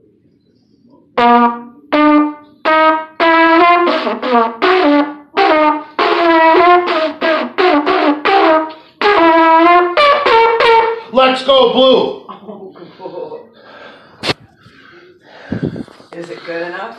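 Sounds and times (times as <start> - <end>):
solo trumpet melody: 1.2 - 11.1.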